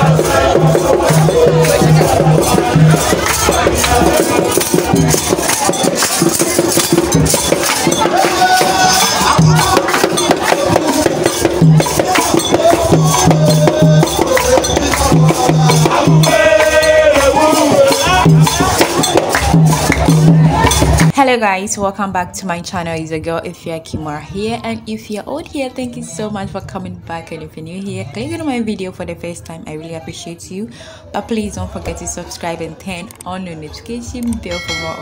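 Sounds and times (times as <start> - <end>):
shakers: 0.0 - 21.2
melody lines: 34.5 - 35.0.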